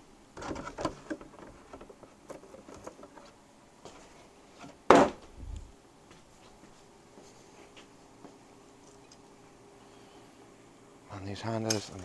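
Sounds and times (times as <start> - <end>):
box thumping: 4.9 - 5.2.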